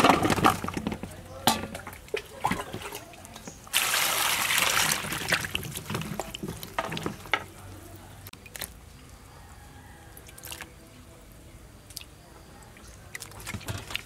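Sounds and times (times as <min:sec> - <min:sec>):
water drips: 0:01.4 - 0:09.2, 0:10.1 - 0:10.8, 0:11.8 - 0:14.0.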